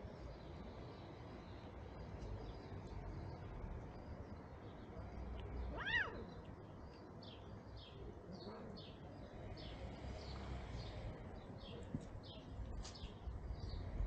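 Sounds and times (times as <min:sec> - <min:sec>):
small birds chirping: 0:00.0 - 0:14.0
cat meowing: 0:05.7 - 0:06.3.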